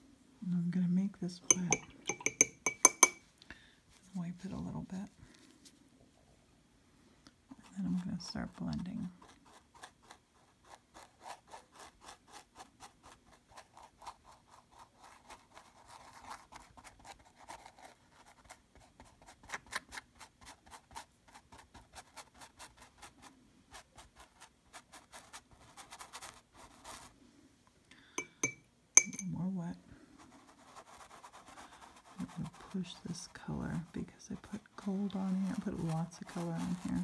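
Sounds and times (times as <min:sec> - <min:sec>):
paintbrush scrubbing on canvas: 0:30.1 - 0:37.0.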